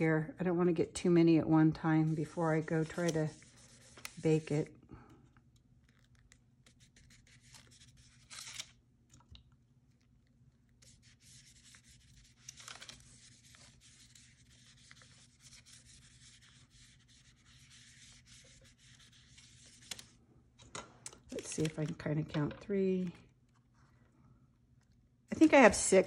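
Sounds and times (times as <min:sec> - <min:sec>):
foam brush rubbing on paper: 0:02.0 - 0:04.7, 0:10.8 - 0:20.1.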